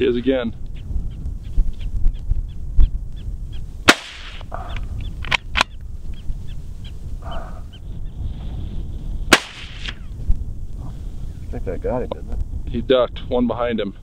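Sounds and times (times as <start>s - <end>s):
wind buffeting microphone: 0.0s - 14.0s
rifle shots with echo: 3.8s - 4.7s, 9.3s - 10.0s
faint sharp cracks: 3.9s - 5.7s, 9.3s - 10.0s.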